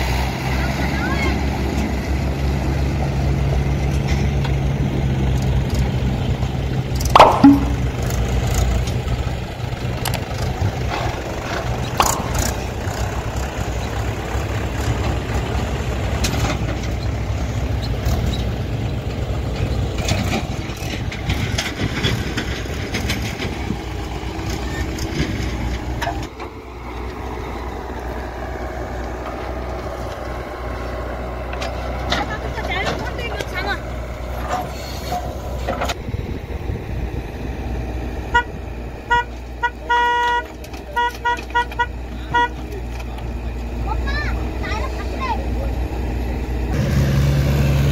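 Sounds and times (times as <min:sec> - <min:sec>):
diesel tractor engine running: 0:00.0 - 0:47.9
tractor and backhoe engines idling: 0:00.0 - 0:47.9
sharp knock: 0:07.2 - 0:08.0.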